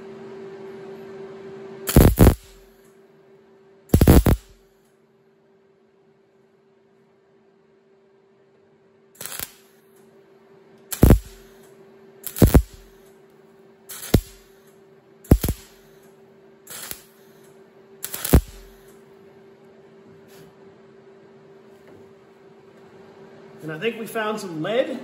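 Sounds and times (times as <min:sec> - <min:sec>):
faint hum: 0:00.0 - 0:25.0
welder bursts: 0:01.9 - 0:02.7, 0:03.9 - 0:04.6, 0:09.2 - 0:09.6, 0:10.9 - 0:11.6, 0:12.2 - 0:13.0, 0:13.9 - 0:14.5, 0:15.3 - 0:15.9, 0:16.7 - 0:17.3, 0:18.0 - 0:18.9.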